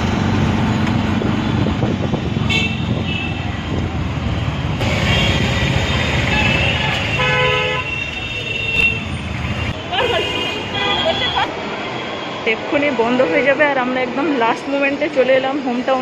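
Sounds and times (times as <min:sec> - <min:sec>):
engine and road rumble: 0:00.0 - 0:15.9
car horns honking: 0:02.5 - 0:03.5, 0:04.8 - 0:11.5.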